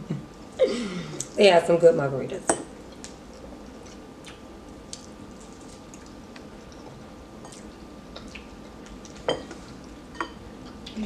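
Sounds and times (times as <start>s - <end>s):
faint steady hum: 0.0s - 11.0s
soft chewing: 2.8s - 11.0s.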